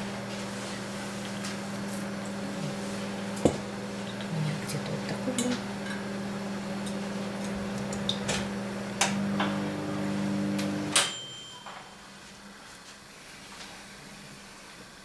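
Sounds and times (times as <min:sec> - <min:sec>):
kitchen appliance humming: 0:00.0 - 0:11.0.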